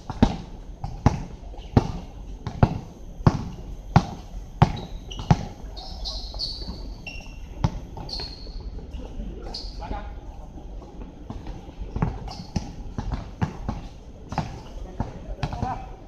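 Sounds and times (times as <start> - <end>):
basketball bouncing on hard court: 0.1 - 5.5, 12.0 - 15.8
short high squeaks: 4.7 - 8.6.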